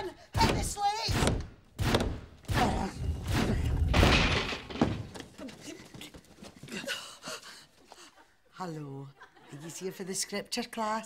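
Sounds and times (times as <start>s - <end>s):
door being forced in: 0.4s - 5.2s
crashing and breaking: 3.8s - 5.3s.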